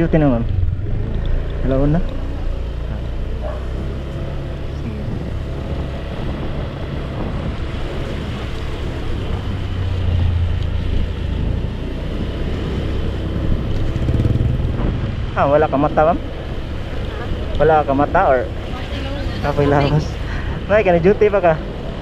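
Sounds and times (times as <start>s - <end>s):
motorcycle engine running: 0.0s - 20.3s
wind noise on microphone: 4.7s - 15.4s.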